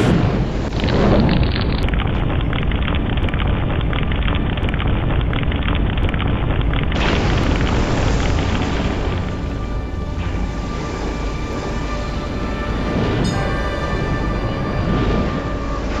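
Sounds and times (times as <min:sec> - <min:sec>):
explosion rumble with crackle: 0:00.0 - 0:11.0.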